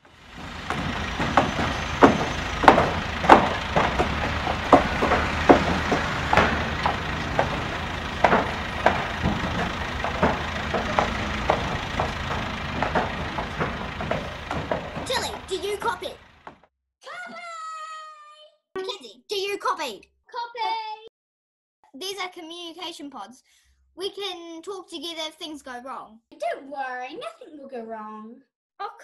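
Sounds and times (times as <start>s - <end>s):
steady low rumble: 0.0s - 16.4s
sharp knocking and clattering: 0.0s - 16.7s.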